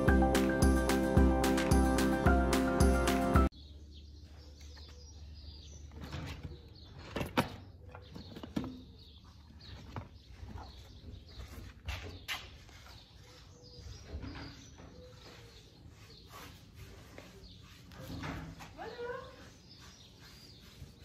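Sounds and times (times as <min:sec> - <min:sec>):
intro music: 0:00.0 - 0:03.5.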